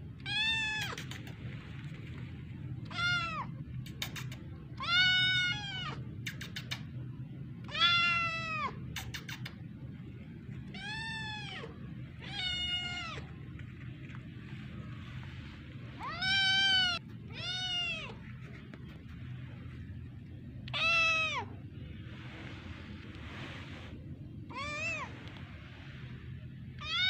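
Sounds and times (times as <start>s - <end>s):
steady low hum: 0.0s - 27.0s
kitten meowing: 0.2s - 1.2s, 16.0s - 18.2s.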